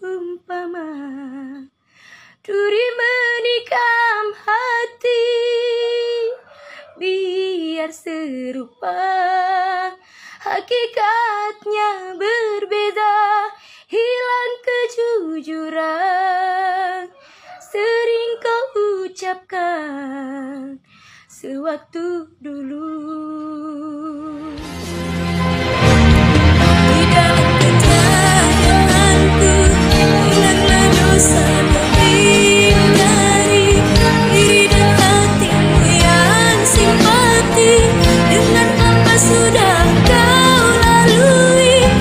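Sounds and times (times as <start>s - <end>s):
loud recorded music: 24.5s - 42.0s
woman singing solo: 26.6s - 42.0s.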